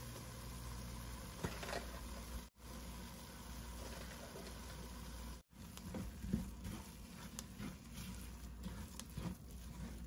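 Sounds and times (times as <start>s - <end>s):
wooden spoon scraping pot: 5.5s - 10.0s.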